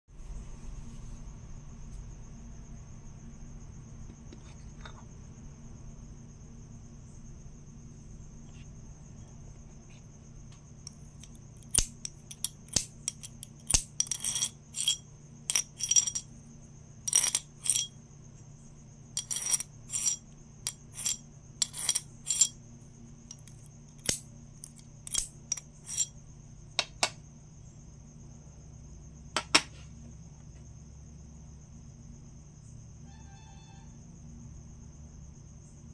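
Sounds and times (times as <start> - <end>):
metal tapping and scraping coin: 10.9 - 16.3, 17.1 - 18.0, 19.2 - 22.6, 23.3 - 26.1.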